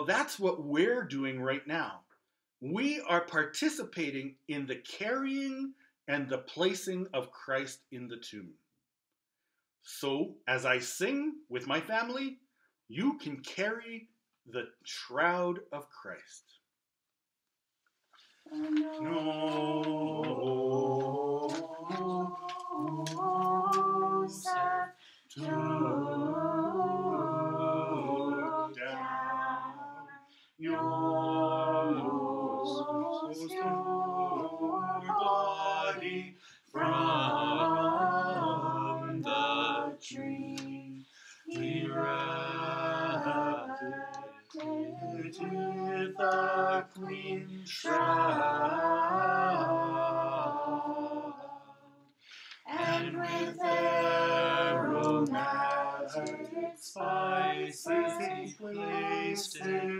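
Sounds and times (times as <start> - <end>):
group singing a hymn: 18.4 - 51.9, 52.5 - 59.9.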